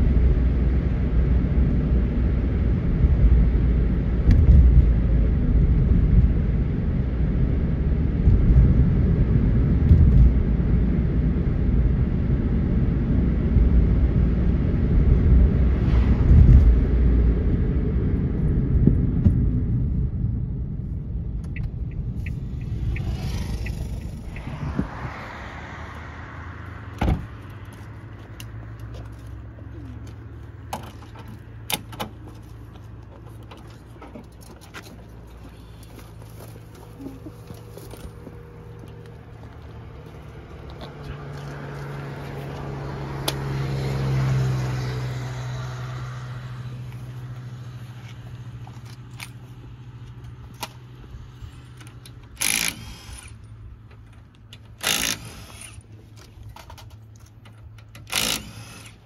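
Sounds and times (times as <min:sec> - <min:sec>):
louder engine sound: 0:00.0 - 0:29.9, 0:37.0 - 0:50.0.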